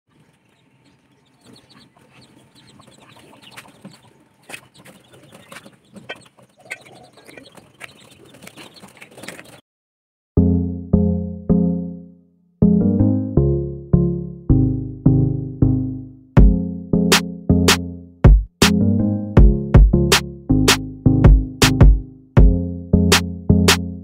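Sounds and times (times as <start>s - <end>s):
chicks peeping: 0.1s - 9.6s
loud keyboard music: 10.4s - 24.0s.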